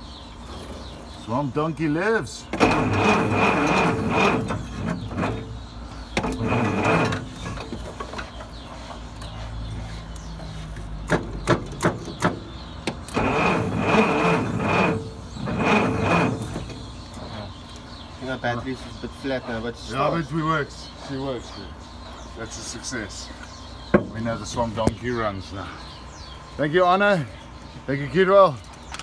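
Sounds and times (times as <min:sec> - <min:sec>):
engine turning over and firing: 0:02.5 - 0:05.6, 0:11.1 - 0:17.0.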